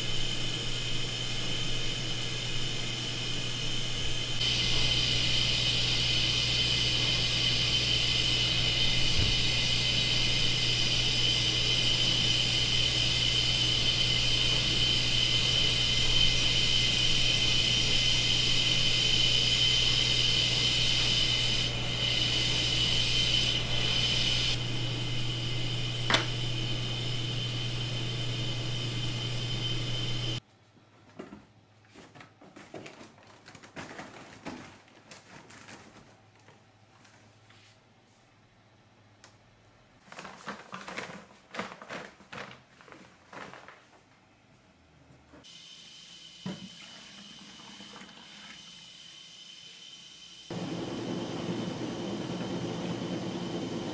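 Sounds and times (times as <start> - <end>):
machine humming and whining: 0.0 - 30.4, 50.1 - 53.9.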